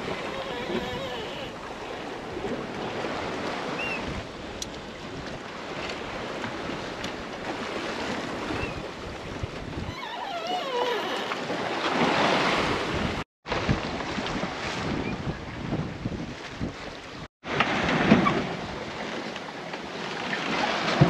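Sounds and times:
water rushing past boat: 0:00.0 - 0:21.0
rigging squeaks: 0:00.2 - 0:02.1, 0:09.8 - 0:12.0
wind buffeting microphone: 0:01.6 - 0:10.0, 0:12.6 - 0:17.3.

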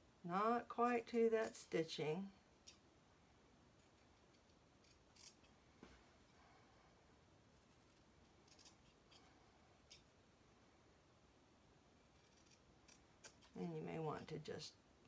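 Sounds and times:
scissors snipping fabric: 0:07.9 - 0:09.3, 0:12.1 - 0:13.6.

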